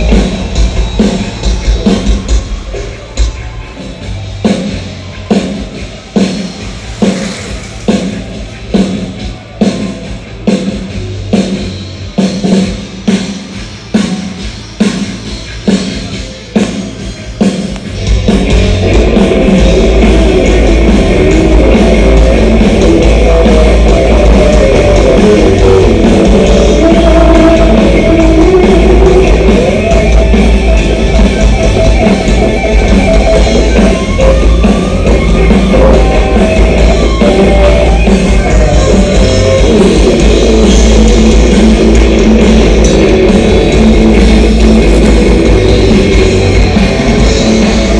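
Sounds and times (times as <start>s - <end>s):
bass guitar: 0.0s - 47.9s
distorted electric guitars: 0.0s - 47.9s
drum kit: 0.0s - 47.9s
drum hits: 40.0s - 47.9s.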